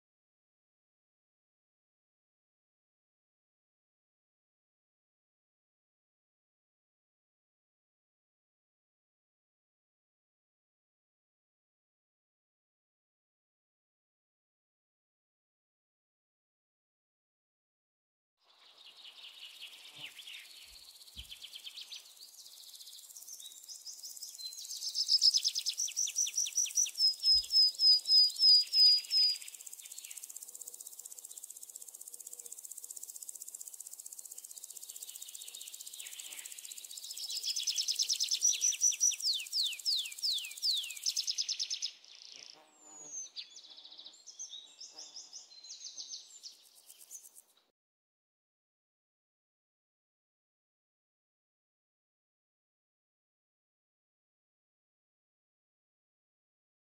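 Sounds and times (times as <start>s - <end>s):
high insect buzz: 29.4s - 37.3s.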